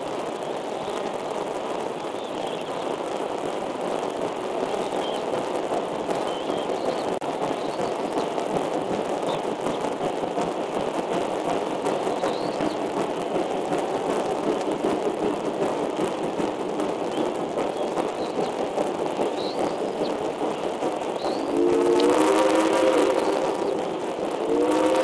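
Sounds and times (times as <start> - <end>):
steady rushing noise: 0.0 - 25.0.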